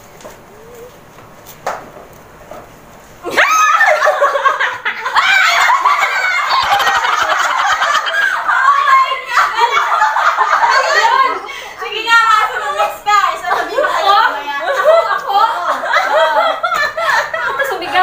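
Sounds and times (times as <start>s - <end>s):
women shrieking with laughter: 3.2s - 11.8s.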